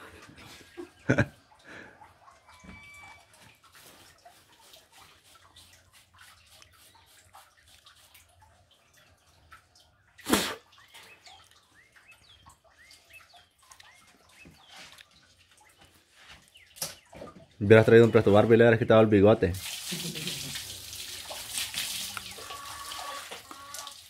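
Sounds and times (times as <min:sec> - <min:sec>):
water splashing on concrete: 0:10.2 - 0:12.5, 0:19.4 - 0:24.0.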